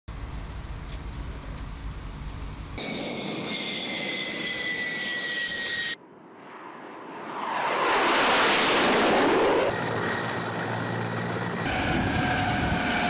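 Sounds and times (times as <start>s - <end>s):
jet engines whining: 2.8s - 13.0s.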